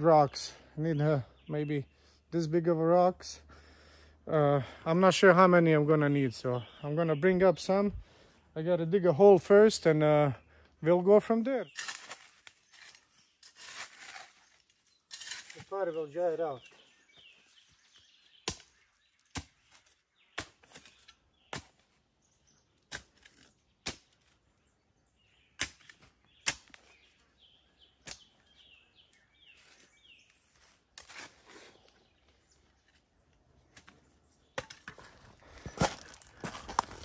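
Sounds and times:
shovel striking ground: 11.7s - 14.4s, 15.1s - 15.8s
shovel scraping: 11.7s - 15.8s, 29.6s - 32.0s.

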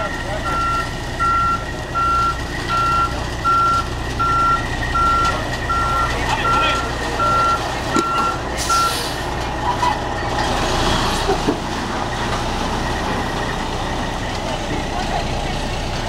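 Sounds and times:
reversing alarm beeping: 0.0s - 9.2s
diesel truck engine running: 0.0s - 16.0s.

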